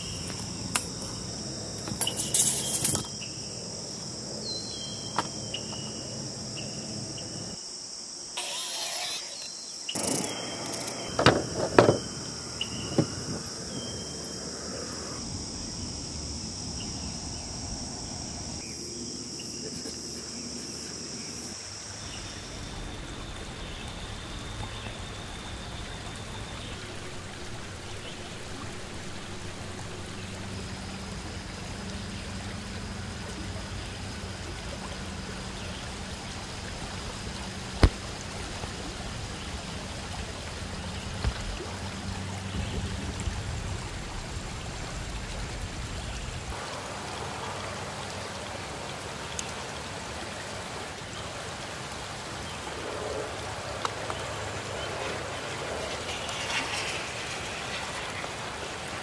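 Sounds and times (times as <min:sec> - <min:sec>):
insects buzzing: 0:00.0 - 0:59.0
steady hiss: 0:00.0 - 0:59.0
sharp knocks: 0:11.1 - 0:12.2, 0:12.8 - 0:13.5.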